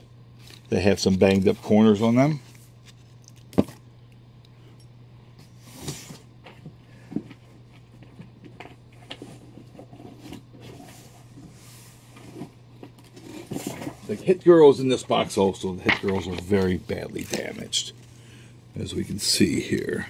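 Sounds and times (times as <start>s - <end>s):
paper rustling: 0.4s - 3.7s, 7.4s - 14.4s.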